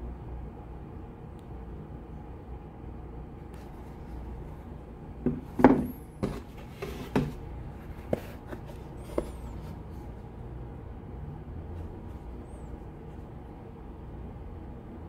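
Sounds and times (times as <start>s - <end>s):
clogs knocking on cardboard box: 5.2s - 7.4s.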